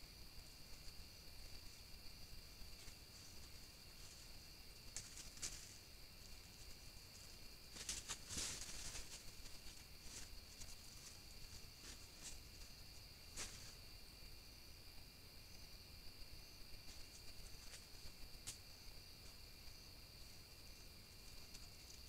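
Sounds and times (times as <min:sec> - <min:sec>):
night insects trilling: 0:00.0 - 0:22.0
rustles in dry leaf litter: 0:07.7 - 0:12.6.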